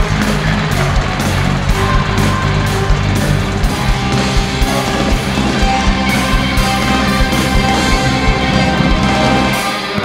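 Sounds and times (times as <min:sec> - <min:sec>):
loud music with steady beat: 0:00.0 - 0:10.0.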